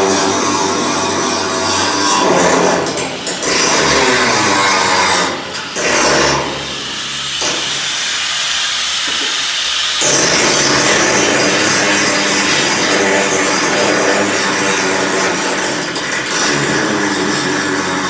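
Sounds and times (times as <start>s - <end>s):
angle grinder grinding steel: 0.0s - 18.0s.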